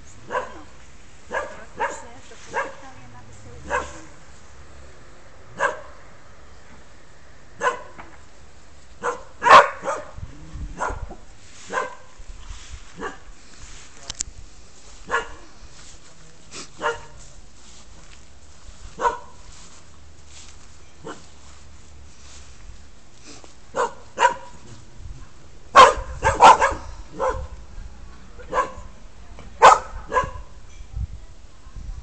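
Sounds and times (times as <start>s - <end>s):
dog barking: 0.3s - 2.8s, 3.6s - 4.2s, 5.6s - 6.0s, 7.6s - 8.0s, 9.0s - 10.2s, 10.8s - 12.1s, 13.0s - 13.3s, 15.1s - 15.5s, 16.8s - 17.2s, 19.0s - 19.4s, 23.7s - 24.6s, 25.7s - 27.6s, 28.4s - 28.9s, 29.6s - 30.6s.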